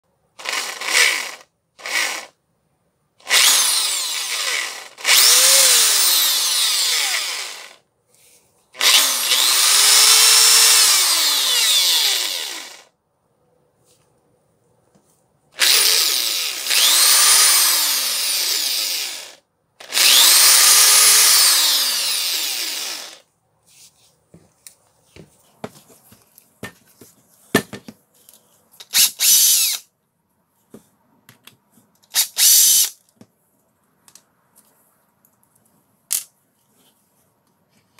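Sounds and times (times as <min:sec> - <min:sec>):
rotary hammer drill motor: 0:00.4 - 0:02.4, 0:03.2 - 0:07.8, 0:08.8 - 0:12.9, 0:15.6 - 0:23.2, 0:28.8 - 0:29.9, 0:32.1 - 0:33.0
tool handling clicks and knocks: 0:24.4 - 0:29.0.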